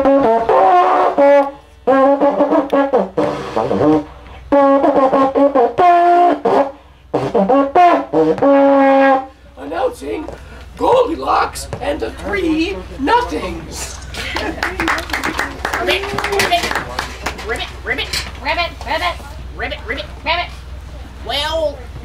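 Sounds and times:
long horn blown: 0.0s - 9.4s.

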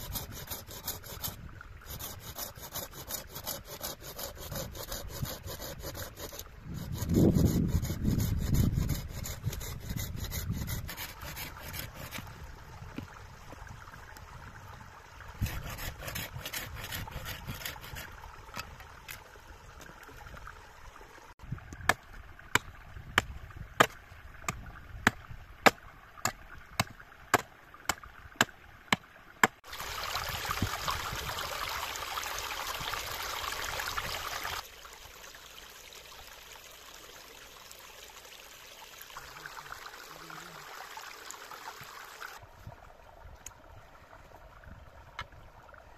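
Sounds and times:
rubbing and scraping wood: 0.0s - 12.3s, 15.4s - 18.7s
pouring trickling water: 29.6s - 45.9s.

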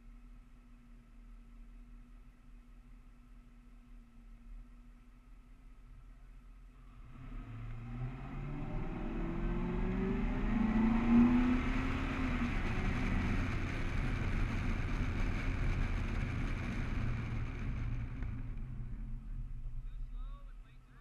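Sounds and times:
wind and tyre noise: 0.0s - 21.0s
car engine accelerating: 6.7s - 21.0s.

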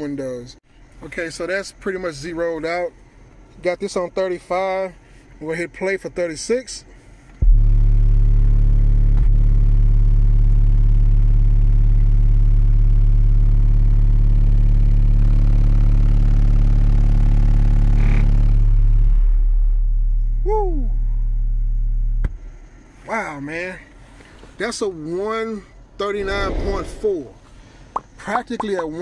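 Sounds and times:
subwoofer low test tone: 7.4s - 22.6s, 26.1s - 27.4s.

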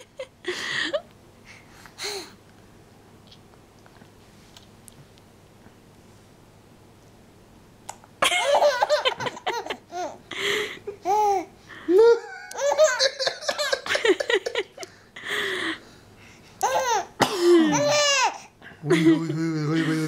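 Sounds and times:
baby girl giggling: 8.2s - 10.2s, 10.9s - 14.8s, 16.6s - 18.4s.

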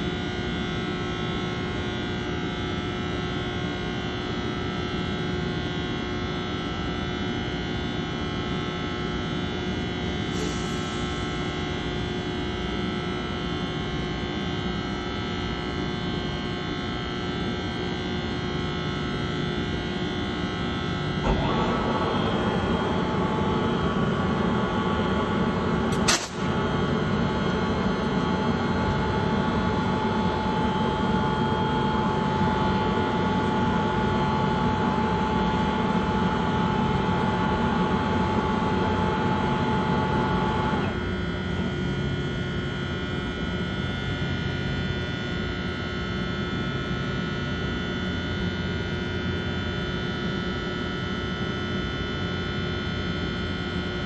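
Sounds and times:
locomotive idling with whining fans: 0.0s - 54.0s
sharp click: 25.9s - 26.5s.

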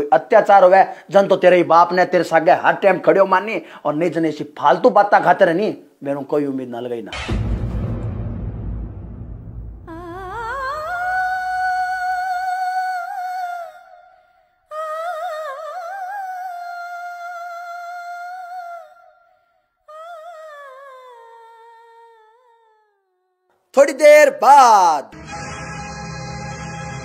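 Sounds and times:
low rumble: 7.2s - 11.2s
high solo voice singing: 9.9s - 19.0s.

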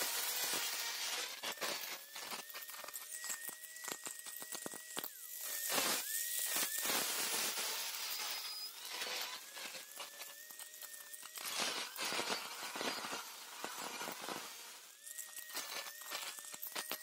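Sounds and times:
angle grinder motor whine: 0.0s - 17.0s
grinder grinding steel: 0.0s - 17.0s.

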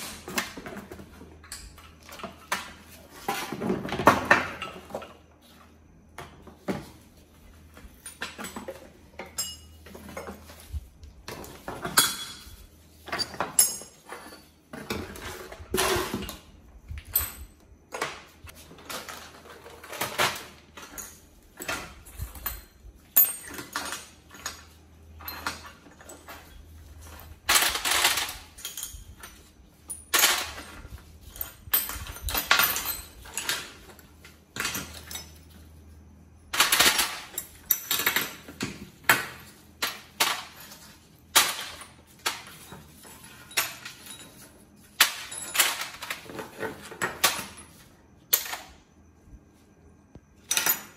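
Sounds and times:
metal parts clinking in a steel tray: 7.9s - 16.4s, 18.8s - 35.6s, 36.5s - 48.7s.

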